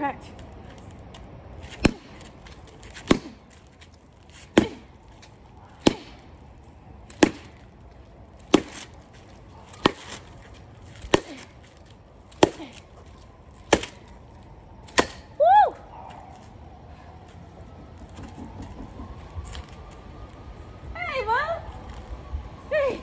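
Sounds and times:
bat whacking a pumpkin: 3.0 - 3.4, 5.8 - 6.2, 7.1 - 7.6, 8.5 - 8.9, 14.9 - 15.3.

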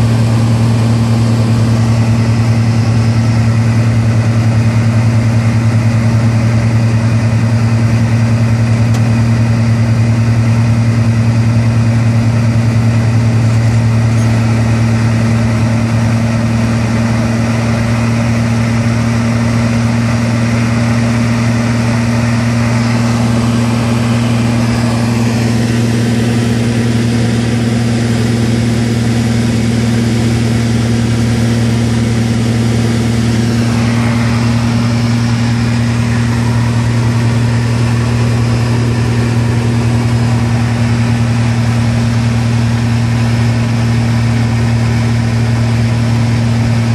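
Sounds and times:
light aircraft engine drone: 0.0 - 46.9
airflow noise: 31.4 - 41.8.

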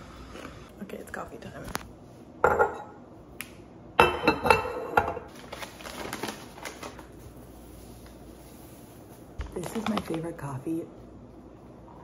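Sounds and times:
ceramic and glass clinking: 4.0 - 5.3
paper filter rustling: 5.3 - 10.6.

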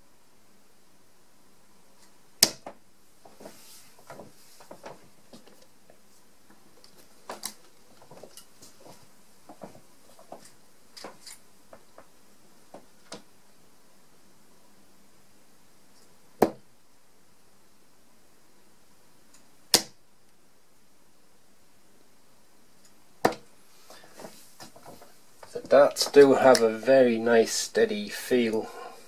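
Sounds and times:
dart thudding into dartboard: 2.4 - 2.8, 16.4 - 16.6, 19.7 - 20.0.

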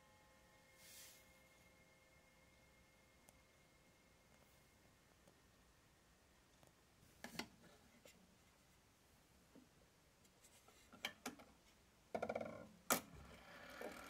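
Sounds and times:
faint metallic ringing: 0.0 - 5.2.

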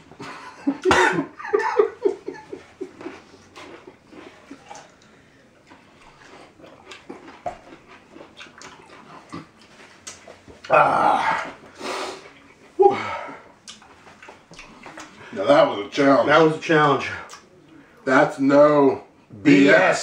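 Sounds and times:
laughter: 0.2 - 3.2.

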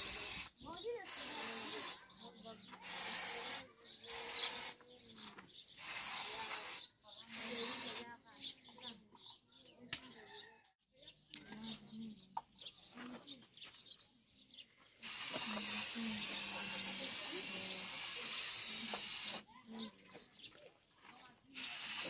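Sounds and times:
spray paint can hissing: 0.0 - 2.2, 2.8 - 4.8, 5.8 - 8.1, 15.0 - 19.5, 21.5 - 22.0
faint bird chirps: 0.4 - 14.9.

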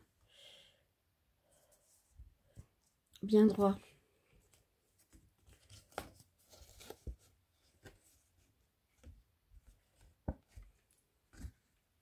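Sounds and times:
card stock rustling: 4.4 - 8.4.

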